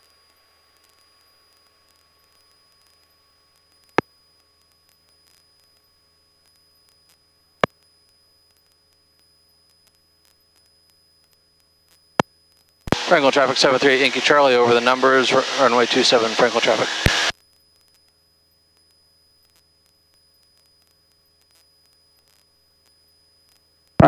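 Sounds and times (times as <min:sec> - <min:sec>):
radio hiss and hum: 0:11.9 - 0:17.3.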